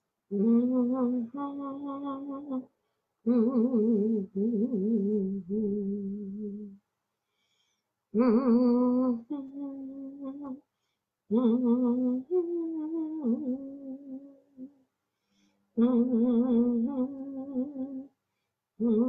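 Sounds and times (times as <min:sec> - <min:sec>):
woman humming a chant: 0:00.3 - 0:02.7, 0:03.3 - 0:06.8, 0:08.2 - 0:10.6, 0:11.3 - 0:14.8, 0:15.8 - 0:18.1, 0:18.8 - 0:19.0.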